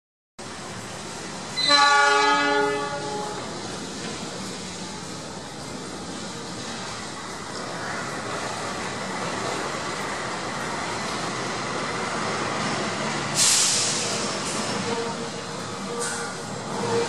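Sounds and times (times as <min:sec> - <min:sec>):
diesel locomotive rolling: 0:00.4 - 0:17.0
loud air hiss: 0:13.1 - 0:14.8.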